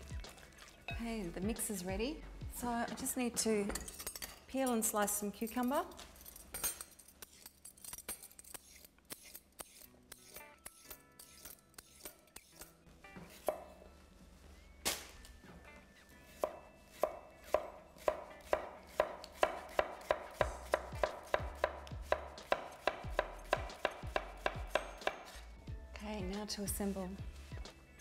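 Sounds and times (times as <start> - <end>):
knife chopping on wooden board: 16.4 - 25.3.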